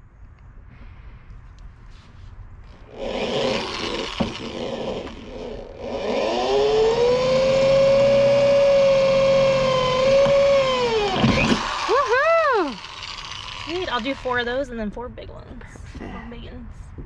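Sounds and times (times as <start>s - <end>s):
power drill boring metal: 2.8s - 14.7s.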